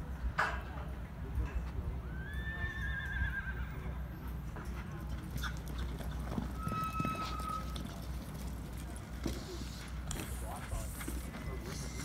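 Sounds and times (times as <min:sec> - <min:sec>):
horse hoofbeats on dirt: 0:04.5 - 0:12.0.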